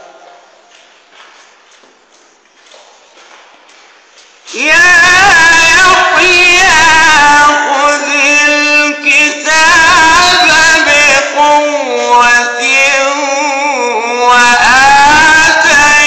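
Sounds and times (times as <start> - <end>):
man chanting melodic recitation: 4.5 - 16.0.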